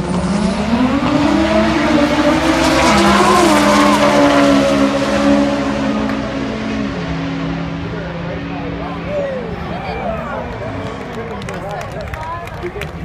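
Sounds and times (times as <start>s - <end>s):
car engine at full throttle: 0.0s - 11.2s.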